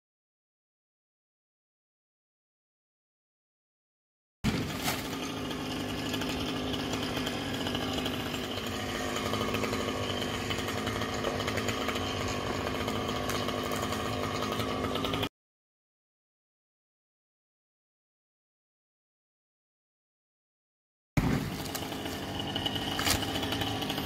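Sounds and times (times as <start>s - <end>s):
chainsaw running: 4.5s - 15.3s, 21.2s - 24.0s.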